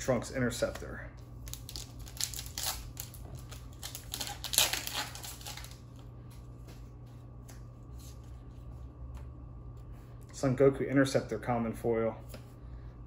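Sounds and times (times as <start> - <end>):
foil wrapper crinkling: 1.4 - 6.0.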